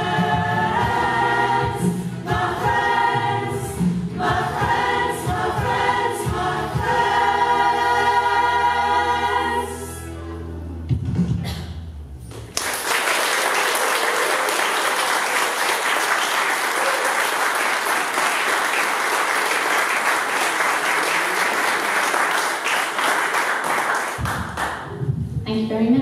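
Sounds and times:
audience applauding: 0:12.3 - 0:25.0.

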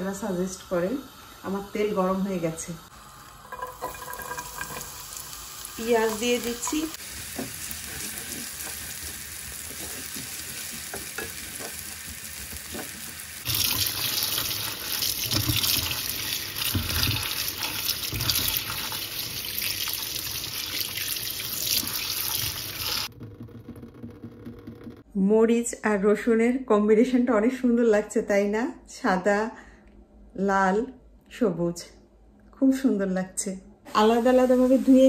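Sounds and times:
onion sizzling in hot oil: 0:00.0 - 0:23.1
water rushing in a sink: 0:02.9 - 0:25.0
spatula stirring in pan: 0:06.2 - 0:19.5.

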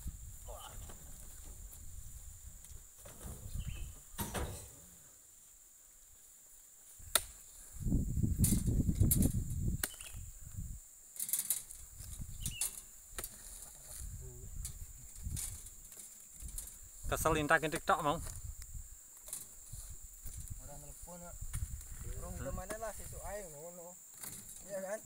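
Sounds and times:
fruit bunches thudding on truck bed: 0:03.0 - 0:04.9
high-pitched insect drone: 0:07.4 - 0:25.0.

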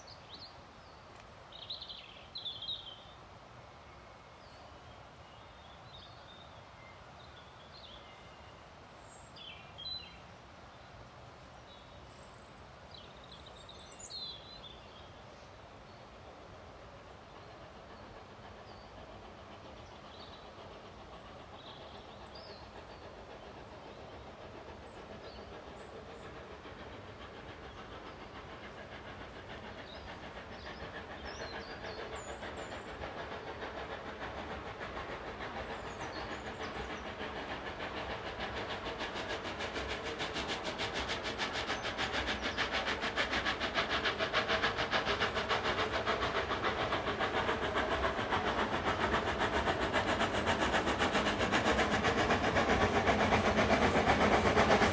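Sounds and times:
faint birds chirping: 0:03.8 - 0:54.9
steam engine chuffing: 0:16.2 - 0:54.9.

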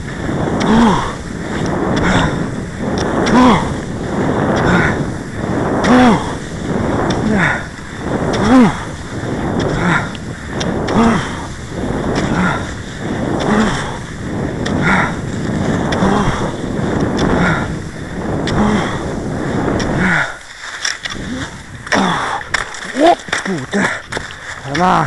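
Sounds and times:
skis and poles swishing over snow: 0:00.0 - 0:25.0
wind noise on microphone: 0:00.0 - 0:25.0
low grunt-like exhale: 0:07.2 - 0:07.7.

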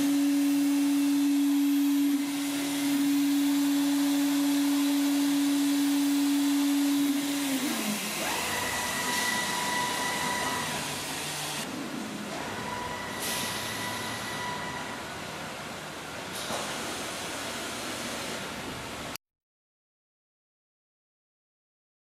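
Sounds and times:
spindle high whine: 0:00.0 - 0:15.6
axis drives whining: 0:00.0 - 0:17.7.

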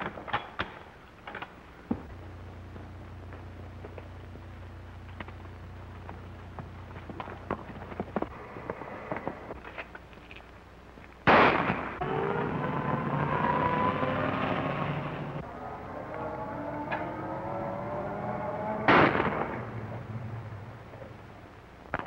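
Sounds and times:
gunshots with echoing tail: 0:11.2 - 0:12.0, 0:18.8 - 0:19.9.

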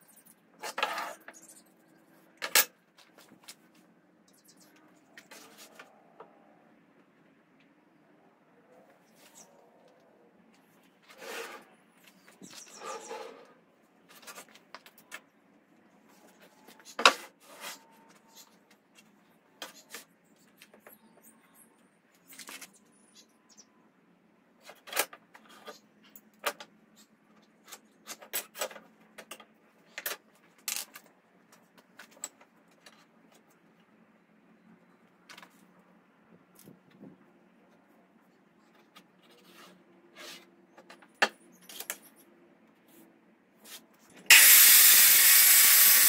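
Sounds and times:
board scraping: 0:11.0 - 0:11.8.

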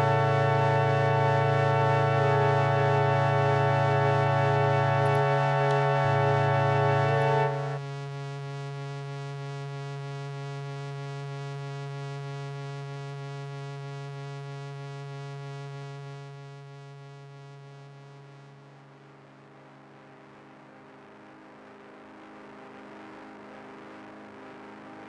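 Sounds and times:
organ-like sustained chord: 0:00.0 - 0:07.8
steady buzzing drone: 0:00.0 - 0:08.3.

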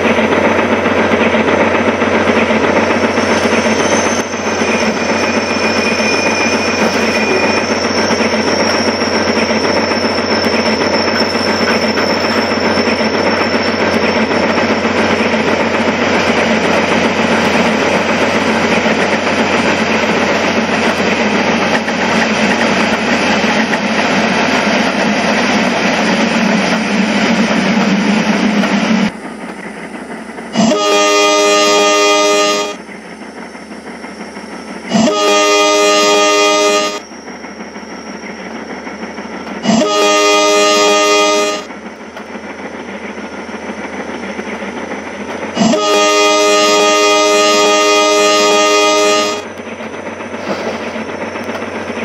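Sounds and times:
train running: 0:00.0 - 0:52.0
train horn blasts: 0:06.2 - 0:08.2, 0:30.6 - 0:32.8, 0:34.9 - 0:37.1, 0:39.6 - 0:41.7, 0:45.6 - 0:49.5.

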